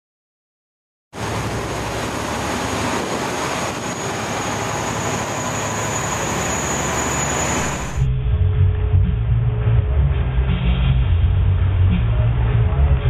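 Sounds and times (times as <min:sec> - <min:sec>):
wind: 0:01.1 - 0:13.0
rushing water: 0:01.2 - 0:08.1
boat engine drone: 0:01.2 - 0:13.0.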